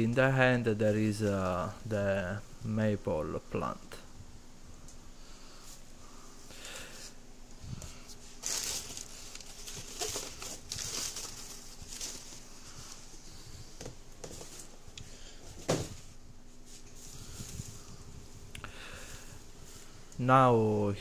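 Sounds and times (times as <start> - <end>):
newspaper crinkling and rustling: 7.8 - 14.8.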